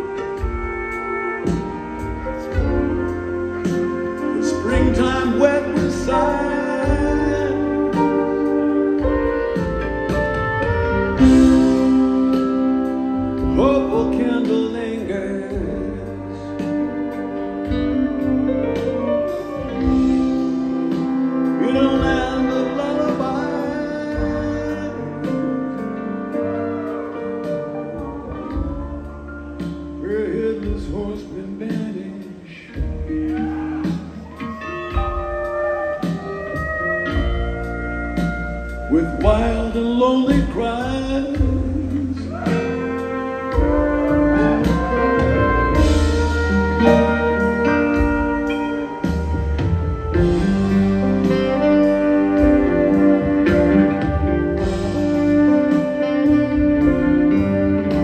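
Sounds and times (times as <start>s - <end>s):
band playing slow instrumental: 0.0s - 58.0s
sliding lead guitar line: 33.0s - 58.0s.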